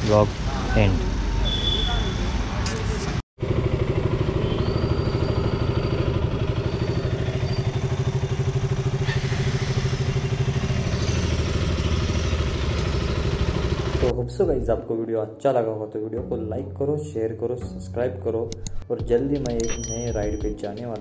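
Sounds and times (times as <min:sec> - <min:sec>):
motorcycle engine idling: 0:03.4 - 0:14.1.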